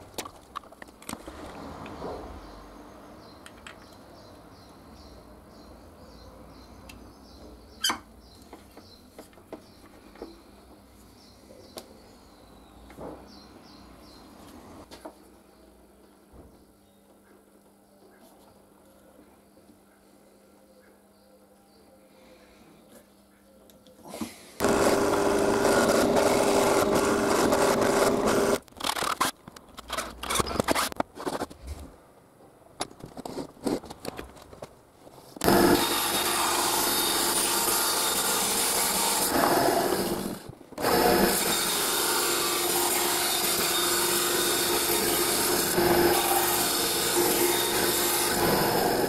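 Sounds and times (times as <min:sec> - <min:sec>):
knocks and handling sounds: 0:00.0 - 0:02.3, 0:32.8 - 0:35.5
band saw cutting wood: 0:24.6 - 0:28.6, 0:35.4 - 0:49.0
drill press drilling wood: 0:24.6 - 0:28.6, 0:35.4 - 0:49.0.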